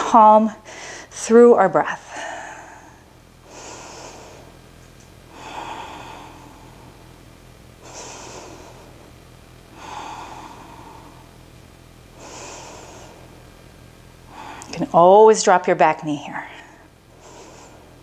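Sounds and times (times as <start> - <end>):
woman breathing deeply: 0.6 - 1.2, 2.0 - 7.2, 7.8 - 11.5, 12.1 - 13.6, 14.2 - 14.8, 16.4 - 18.0.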